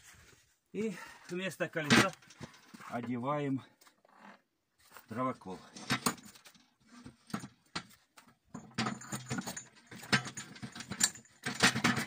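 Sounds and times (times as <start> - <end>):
steel parts clanking: 8.6 - 12.0.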